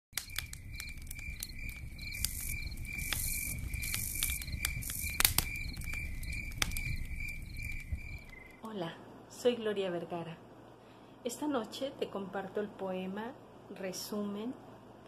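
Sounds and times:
crickets chirping: 0.2s - 8.7s.

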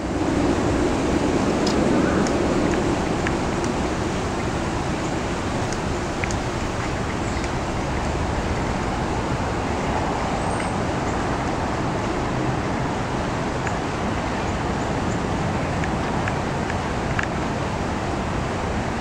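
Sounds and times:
continuous outdoor roar: 0.0s - 19.0s
faint high ticks: 5.6s - 7.6s.

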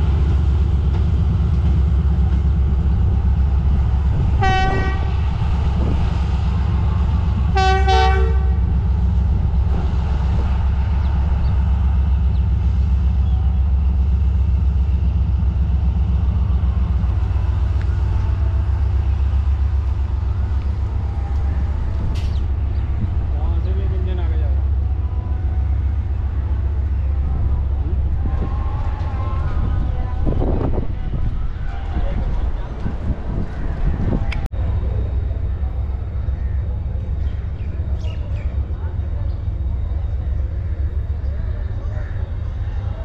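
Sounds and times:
diesel engine rumble: 0.0s - 43.0s
locomotive horn blasts: 4.4s - 5.2s, 7.5s - 8.7s.

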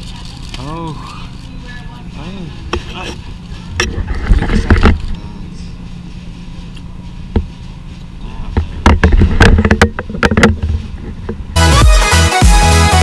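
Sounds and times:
low room hum: 0.0s - 11.6s
camera handling knocks and rustles: 8.7s - 11.4s.

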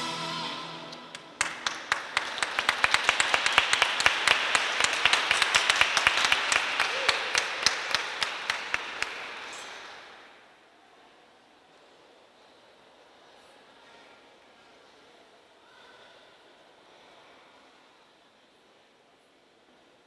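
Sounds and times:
audience applauding: 0.9s - 10.1s.

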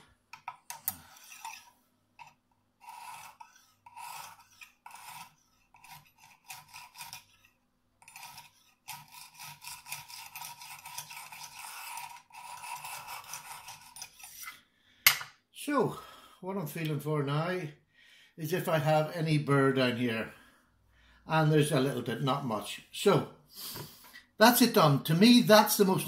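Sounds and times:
hone scraping knife edge: 0.4s - 15.3s.

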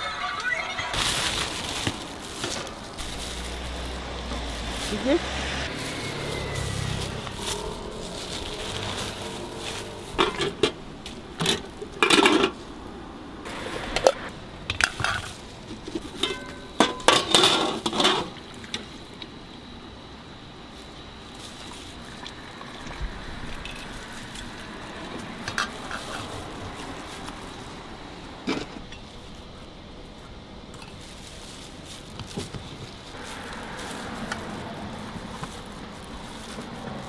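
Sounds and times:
plastic crinkling: 0.6s - 12.8s, 20.7s - 37.0s.

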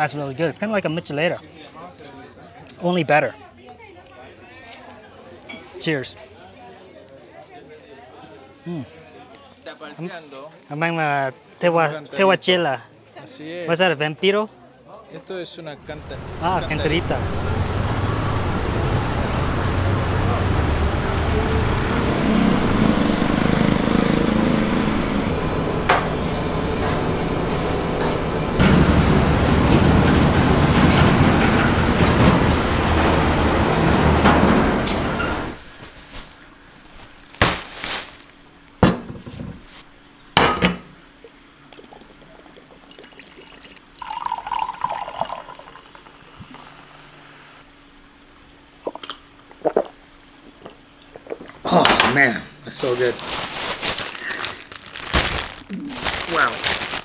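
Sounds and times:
street traffic: 15.6s - 35.7s, 52.6s - 57.0s
vehicle engine running: 15.8s - 35.6s
drink pouring into cup: 41.6s - 46.8s.

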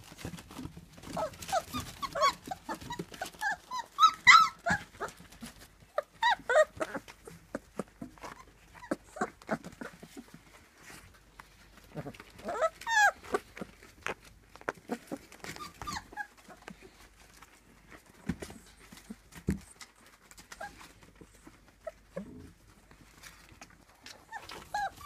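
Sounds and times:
paws scratching on newspaper: 0.0s - 25.0s
puppies whimpering and squealing: 0.6s - 10.4s, 11.9s - 13.9s, 14.7s - 17.0s, 18.5s - 22.6s, 24.1s - 25.0s.

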